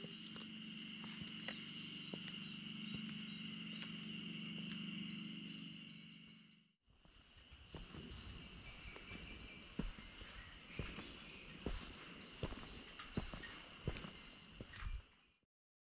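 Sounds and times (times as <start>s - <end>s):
high insect drone: 0.0s - 15.0s
low hum: 0.0s - 15.1s
birds chirping: 0.0s - 15.4s.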